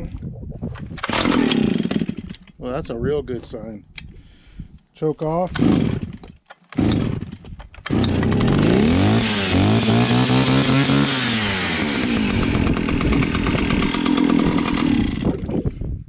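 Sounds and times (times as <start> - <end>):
chainsaw starting and idling: 1.0 - 2.6, 5.5 - 15.7.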